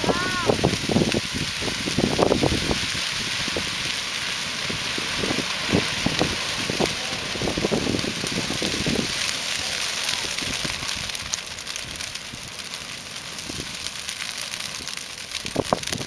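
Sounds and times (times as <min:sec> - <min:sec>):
grass fire crackling: 0:00.0 - 0:16.0
sharp pops of fire: 0:00.0 - 0:16.0.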